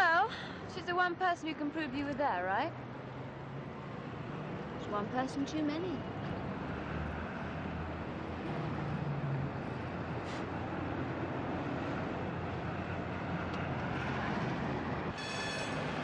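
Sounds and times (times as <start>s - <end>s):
city background noise: 0.0s - 16.0s.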